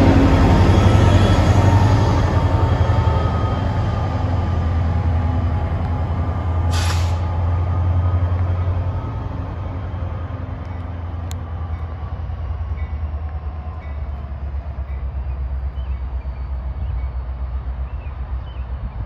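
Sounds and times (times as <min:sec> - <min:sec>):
diesel locomotive engine drone: 0:00.0 - 0:19.0
air hiss: 0:06.7 - 0:07.3.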